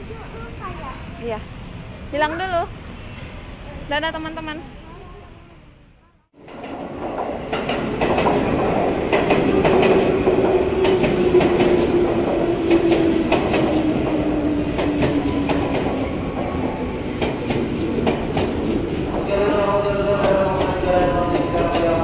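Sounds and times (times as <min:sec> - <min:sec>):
wheels clacking over rail joints: 0:06.4 - 0:19.3.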